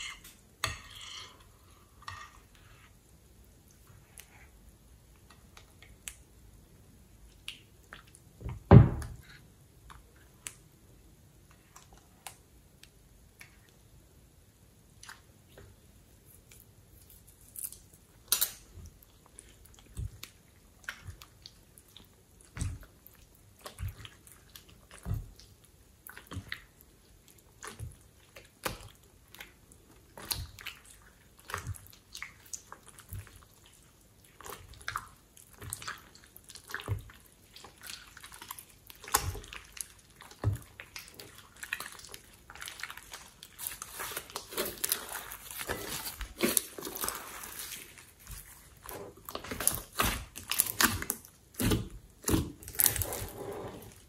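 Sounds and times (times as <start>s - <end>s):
slime squelching: 14.9s - 54.0s.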